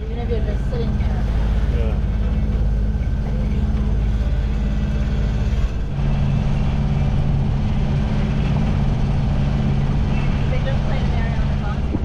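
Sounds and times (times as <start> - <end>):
boat engine humming: 0.0 - 12.0.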